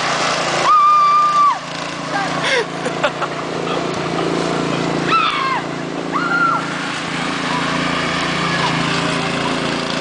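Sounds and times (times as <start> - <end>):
garden tractor engine running: 0.0 - 10.0
person squealing: 5.0 - 6.7.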